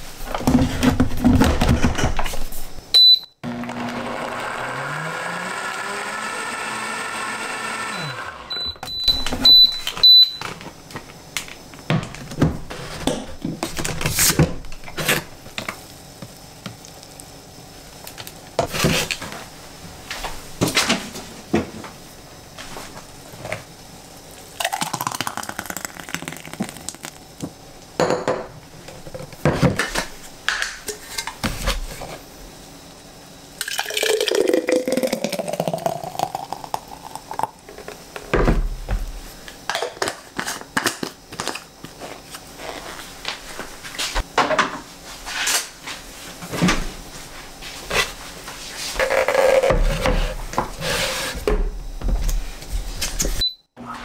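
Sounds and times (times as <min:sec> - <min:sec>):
thick juice pouring into glass: 0:24.6 - 0:27.2, 0:33.6 - 0:37.8.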